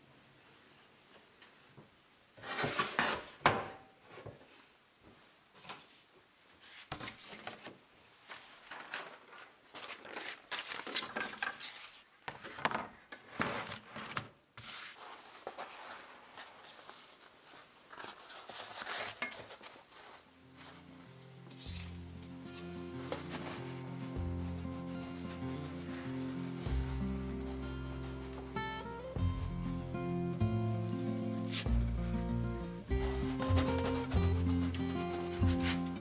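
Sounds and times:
baking parchment crinkling: 0:06.7 - 0:12.6, 0:13.6 - 0:20.9, 0:32.9 - 0:36.0.

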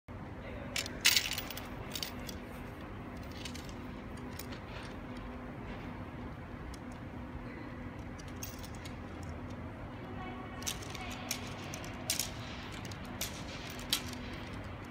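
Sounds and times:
steady low hum: 0:00.1 - 0:14.9
sharp clinks and clicks: 0:00.8 - 0:02.4, 0:08.0 - 0:09.6, 0:10.6 - 0:14.9.

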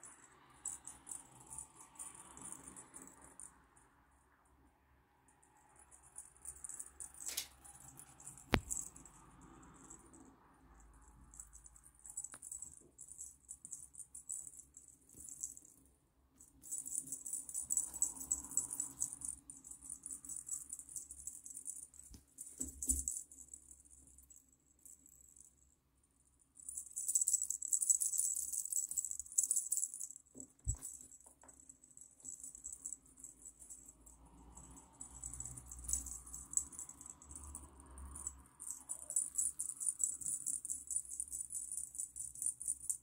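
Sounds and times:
cat toy jingling rattle: 0:06.0 - 0:10.2, 0:11.0 - 0:15.8, 0:16.4 - 0:25.5, 0:26.6 - 0:43.0.

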